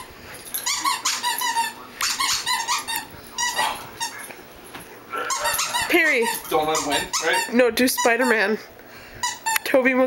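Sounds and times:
squeaky dog toy squeaking: 0.6s - 4.1s, 5.3s - 8.5s, 9.2s - 9.7s.

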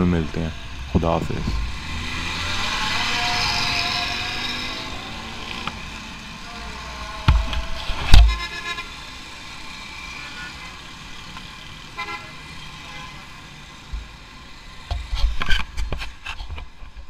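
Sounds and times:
busy road traffic: 0.0s - 17.0s
vehicle horn tooting: 8.1s - 9.1s, 11.9s - 13.4s.

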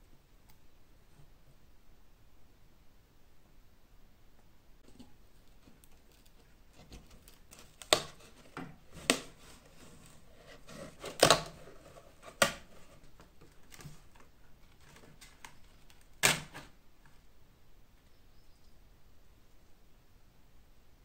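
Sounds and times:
old leather tearing from wood: 6.9s - 10.0s, 10.7s - 12.7s, 15.9s - 16.7s.

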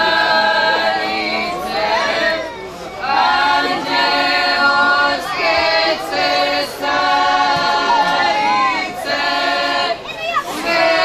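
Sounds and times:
women singing unaccompanied: 0.0s - 11.0s.

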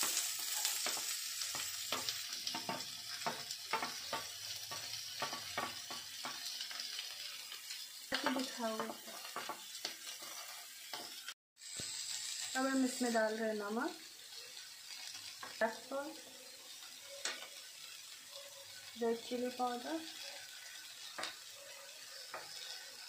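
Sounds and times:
vegetables sizzling in hot oil: 0.0s - 23.0s
wooden spatula scraping and tapping: 0.5s - 7.0s, 8.7s - 11.2s, 22.3s - 22.8s.

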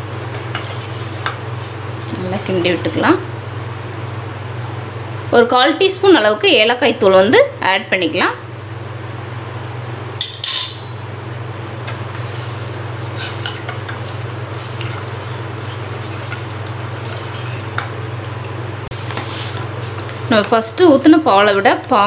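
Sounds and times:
metal spoon stirring in saucepan: 0.0s - 3.0s, 11.9s - 22.0s
steady low hum: 0.0s - 22.0s
spoon clinking and scraping pot: 13.1s - 18.0s.

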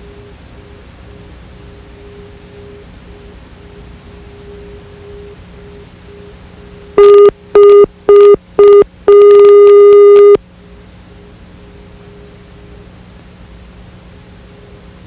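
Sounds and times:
tape hiss and hum: 0.0s - 15.0s
electronic beeps: 7.0s - 10.4s.

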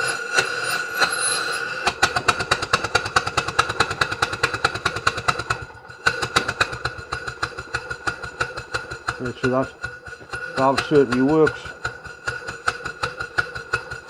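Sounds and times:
compressed air whistling and pulsing: 0.0s - 14.0s.

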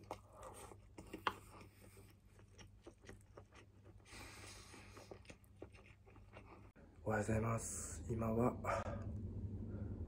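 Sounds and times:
man chewing rice: 0.0s - 6.8s.

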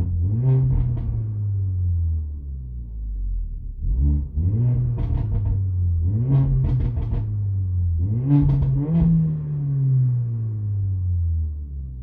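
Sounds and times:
exhaust crackles and pops: 0.0s - 1.3s, 4.6s - 7.5s, 8.1s - 9.4s
car engine revving: 0.0s - 12.0s.

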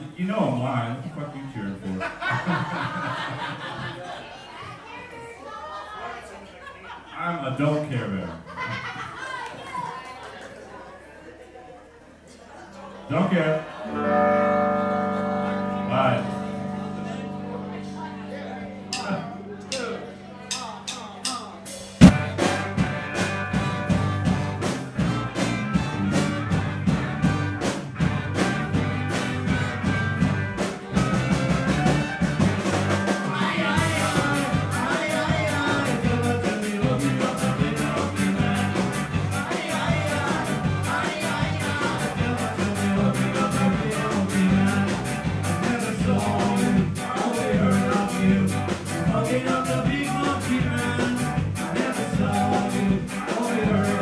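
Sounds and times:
live ska band playing: 13.6s - 54.0s.

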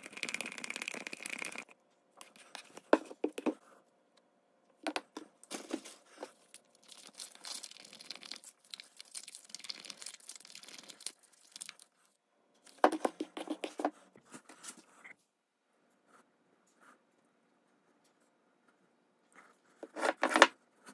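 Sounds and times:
plastic cups crinkling: 5.0s - 12.0s.

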